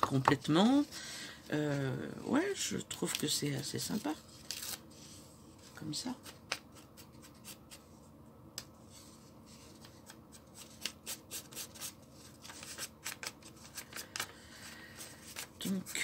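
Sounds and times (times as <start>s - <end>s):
paper rustling: 3.0s - 5.2s, 9.0s - 16.0s.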